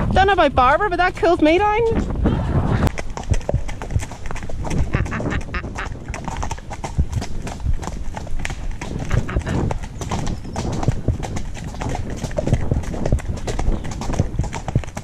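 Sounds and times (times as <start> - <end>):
horse hooves on dirt: 0.0 - 15.0.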